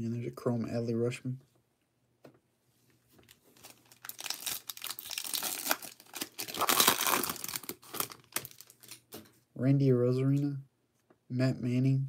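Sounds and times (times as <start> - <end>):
wrapper tearing open: 3.2 - 9.0
plastic wrapper crinkling: 3.2 - 9.2.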